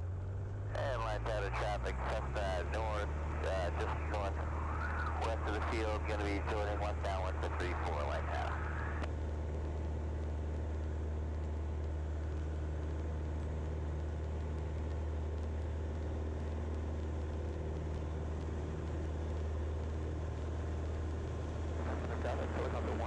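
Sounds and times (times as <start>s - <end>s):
propeller plane engine drone: 0.0s - 23.0s.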